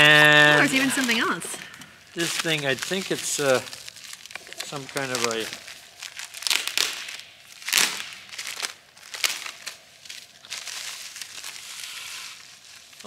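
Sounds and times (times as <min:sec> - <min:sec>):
packaging crinkling: 0:00.0 - 0:13.0.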